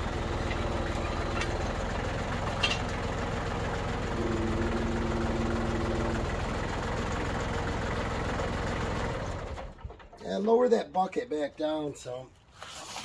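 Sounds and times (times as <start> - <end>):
tractor engine idling: 0.0 - 12.1
steady tone: 4.2 - 6.4.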